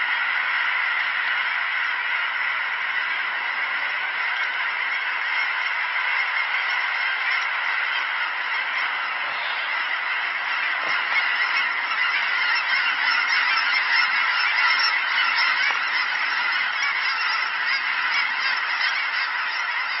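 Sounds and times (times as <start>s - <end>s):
flock of geese calling: 0.0s - 20.0s.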